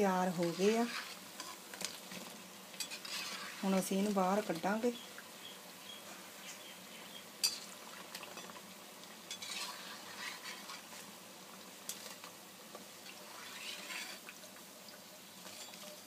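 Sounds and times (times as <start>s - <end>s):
hot oil sizzling: 0.0s - 16.0s
metal spoon scraping and clinking pan: 2.8s - 3.6s, 7.4s - 8.6s, 9.3s - 10.8s, 13.3s - 14.2s.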